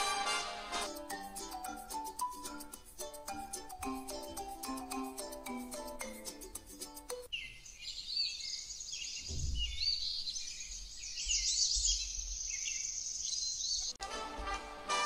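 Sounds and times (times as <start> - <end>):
light mallet instrument music: 0.8 - 7.3
birds chirping: 7.3 - 14.0.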